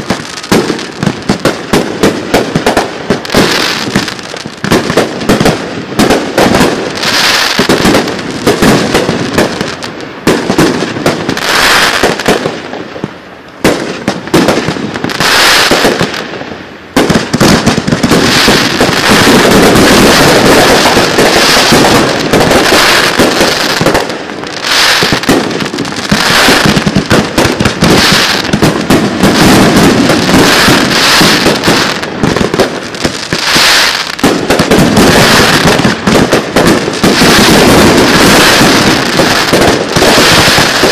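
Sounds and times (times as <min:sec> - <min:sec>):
fireworks bursting in rapid bangs: 0:00.0 - 0:40.9.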